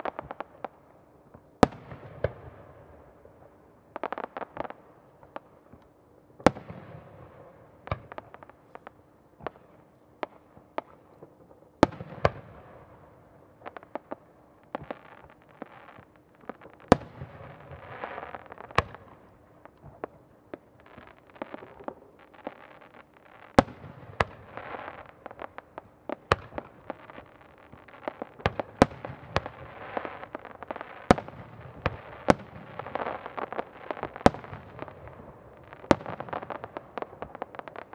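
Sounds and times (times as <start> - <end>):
firework crackle: 13.6 - 37.9.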